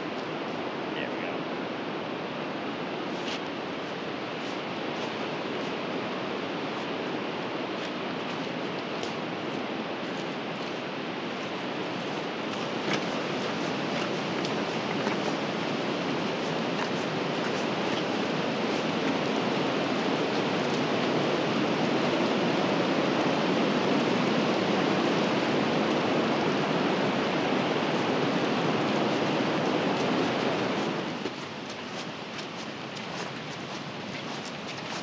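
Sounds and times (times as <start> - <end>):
stream water rushing: 0.0 - 35.0.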